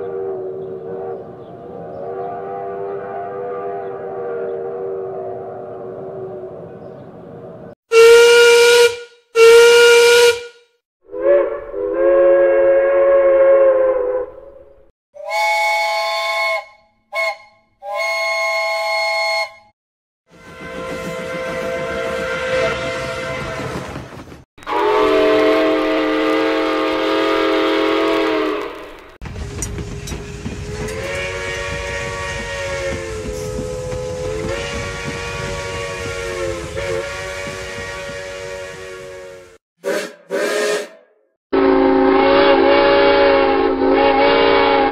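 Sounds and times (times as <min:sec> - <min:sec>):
deep multi-tone steam whistle: 0:00.0 - 0:06.4, 0:07.9 - 0:14.5, 0:15.2 - 0:19.7, 0:20.3 - 0:23.8, 0:24.6 - 0:28.9, 0:30.3 - 0:44.9
steam whistle short blasts: 0:07.9 - 0:13.6, 0:15.2 - 0:19.7, 0:30.8 - 0:44.9.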